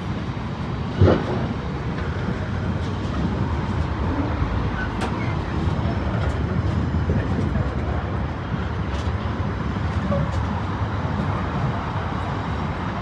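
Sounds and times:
freight wagons rumbling and rattling: 0.0s - 13.0s.

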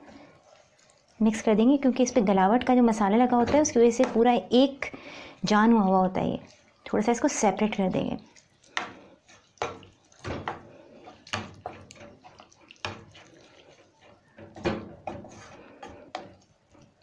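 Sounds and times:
spatula knocking and scraping pan: 3.2s - 4.4s, 8.8s - 17.0s
wet mince being turned: 5.8s - 17.0s.

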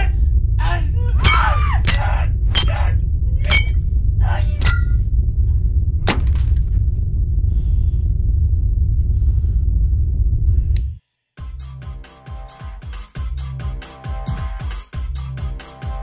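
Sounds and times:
sharp crashes: 0.0s - 7.0s
low rumbling drone: 0.0s - 11.0s
glass breaking: 1.2s - 3.8s, 4.6s - 5.0s, 6.0s - 6.7s
electronic music with a beat: 11.4s - 16.0s.

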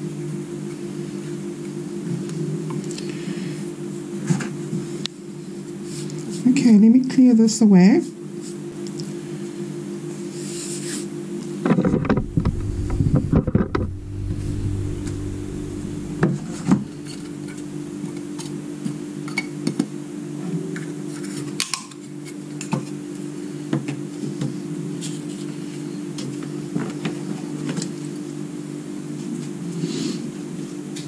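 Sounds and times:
steady low hum: 11.7s - 19.4s.

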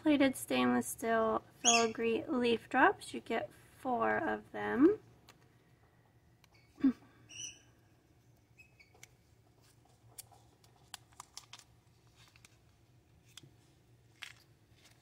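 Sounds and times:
plastic bag crinkling: 9.8s - 15.0s.

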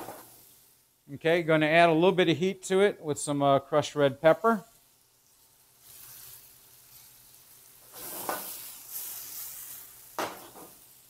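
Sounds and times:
vegetables sizzling in a pan: 0.0s - 1.1s, 4.0s - 11.0s.

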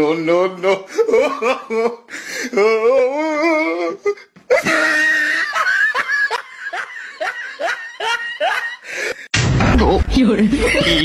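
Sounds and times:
woman laughing: 4.5s - 8.9s, 10.4s - 11.0s.

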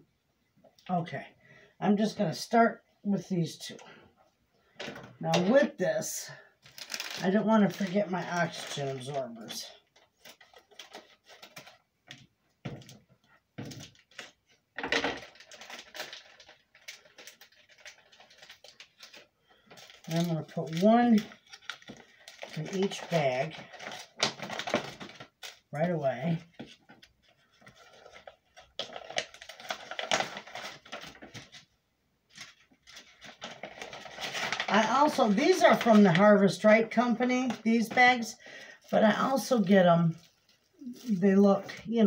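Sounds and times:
foil bags rustling: 6.1s - 11.8s, 13.6s - 25.8s, 32.3s - 42.0s.

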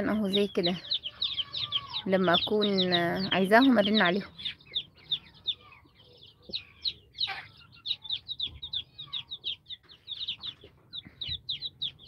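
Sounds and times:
chicks peeping: 0.0s - 12.0s.

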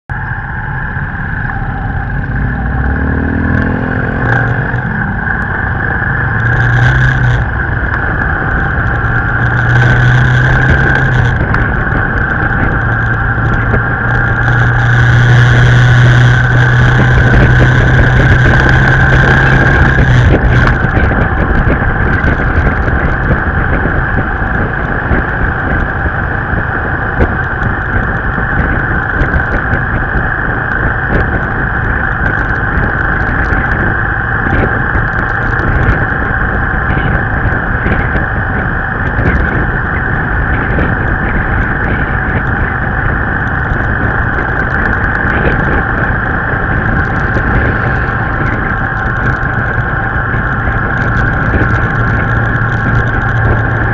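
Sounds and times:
wind and road noise: 0.0s - 53.9s
motorbike engine: 0.1s - 53.9s.

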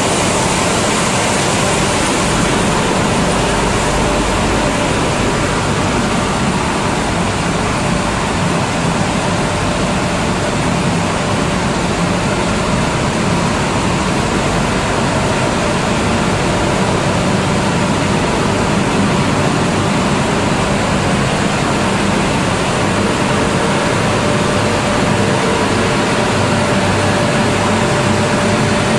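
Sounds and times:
mill machinery rushing: 0.0s - 28.9s.

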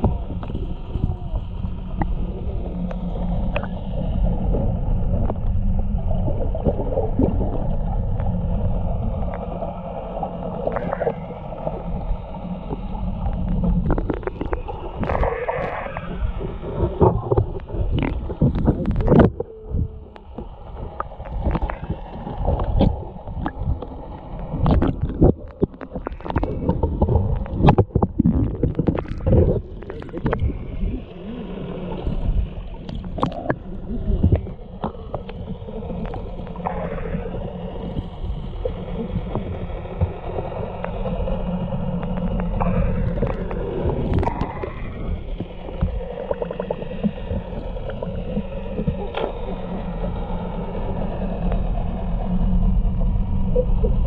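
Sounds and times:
constant low hum: 0.0s - 54.0s
underwater gurgling: 0.0s - 54.0s
underwater splashing and knocks: 12.7s - 30.8s, 32.1s - 35.5s, 42.0s - 49.5s.

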